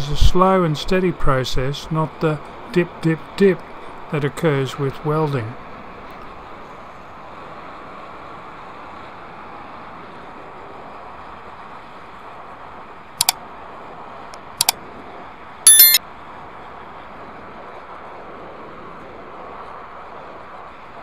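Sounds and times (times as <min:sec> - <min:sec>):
bell chime: 0:15.7 - 0:16.0
mouse clicks: 0:15.7 - 0:16.0.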